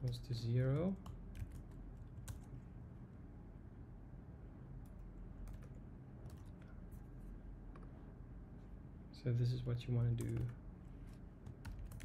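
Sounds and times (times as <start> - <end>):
computer keyboard keystrokes: 0.0 - 2.5, 4.8 - 6.7, 10.2 - 10.6, 11.4 - 12.0
faint low room hum: 0.0 - 12.0.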